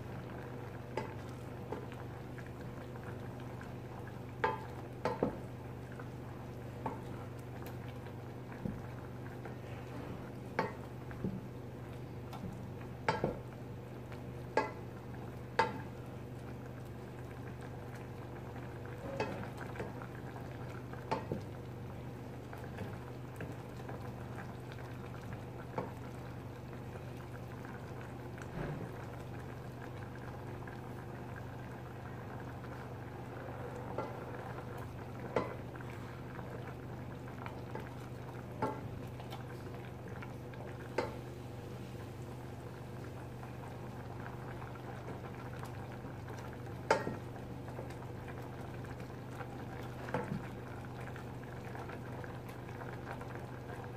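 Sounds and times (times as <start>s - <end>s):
cream sauce bubbling in saucepan: 0.0s - 53.9s.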